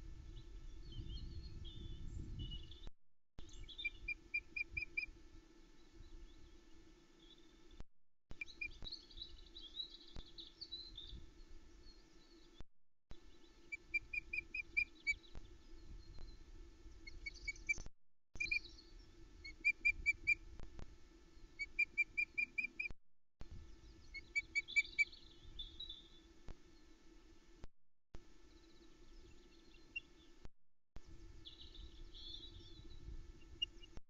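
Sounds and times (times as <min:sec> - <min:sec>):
faint steady hum: 0:00.0 - 0:34.0
osprey chirping: 0:17.0 - 0:20.4, 0:21.5 - 0:22.9, 0:23.9 - 0:26.3, 0:31.4 - 0:34.0.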